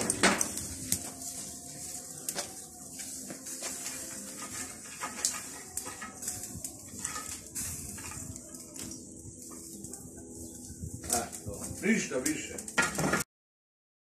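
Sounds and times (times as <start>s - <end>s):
wooden pole knocking and scraping: 12.7s - 13.2s.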